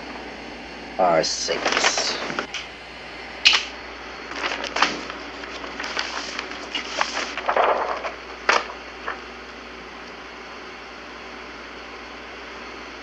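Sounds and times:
film sheets crackling rustles: 0:01.4 - 0:02.7, 0:04.2 - 0:09.3.

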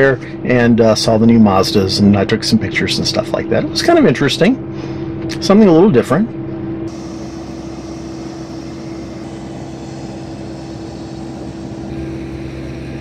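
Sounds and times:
aircraft engine droning: 0:06.4 - 0:13.0.

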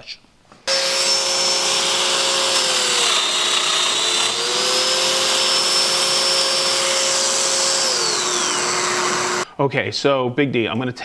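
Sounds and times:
dust extractor running: 0:00.7 - 0:09.4
joiner motor cutting wood: 0:00.7 - 0:09.4.

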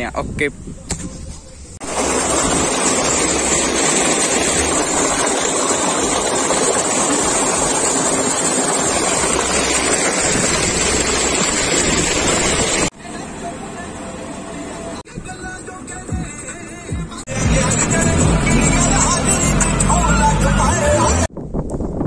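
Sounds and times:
water gushing into tank: 0:01.8 - 0:12.9.

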